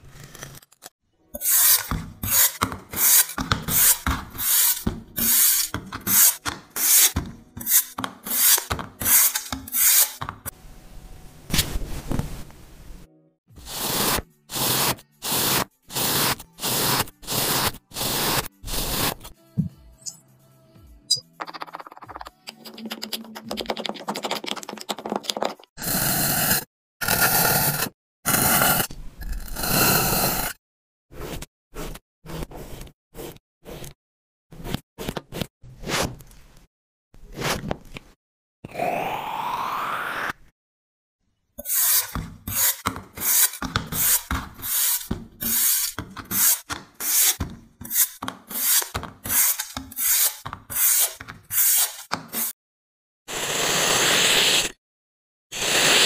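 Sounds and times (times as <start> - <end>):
blade slicing foam: 1.4 - 10.4, 13.6 - 19.3, 25.8 - 28.9, 29.6 - 36.3, 37.2 - 37.7, 41.6 - 52.5.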